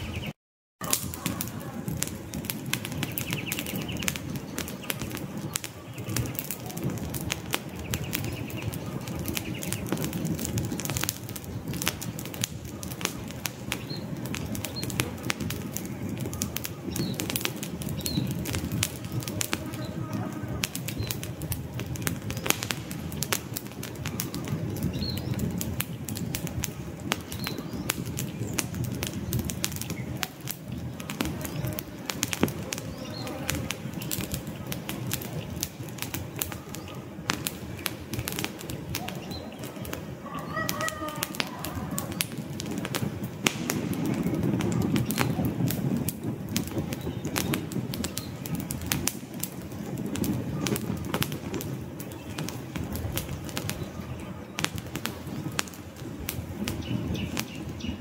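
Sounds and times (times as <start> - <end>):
campfire crackling and popping: 0.0 - 58.0.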